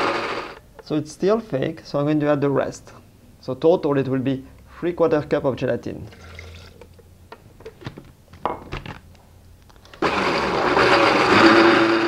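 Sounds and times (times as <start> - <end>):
blender motor running: 0.0 - 0.6, 10.0 - 12.0.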